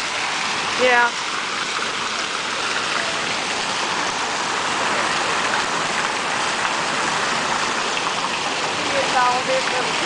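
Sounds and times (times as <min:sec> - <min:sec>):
fountain water splashing: 0:00.0 - 0:10.0.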